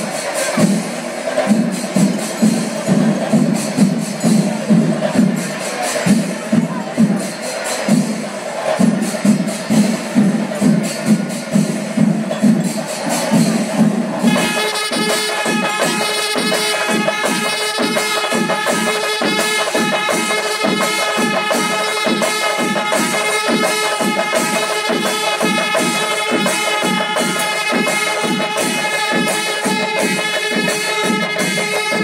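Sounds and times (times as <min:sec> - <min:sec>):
drums beating fast rhythm: 0:00.0 - 0:32.0
hand cymbals: 0:00.0 - 0:32.0
horns holding a long note: 0:14.3 - 0:32.0.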